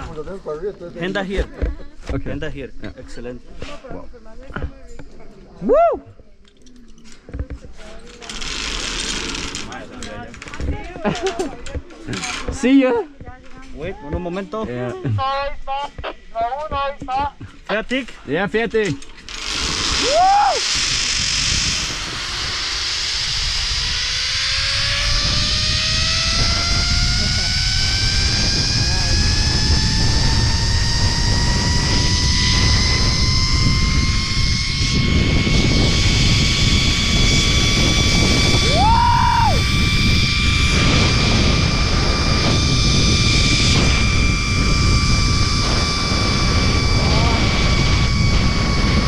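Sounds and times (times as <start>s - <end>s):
zip line pulleys whining: 8.1s - 12.5s, 18.8s - 49.0s
wind buffeting microphone: 19.3s - 49.0s.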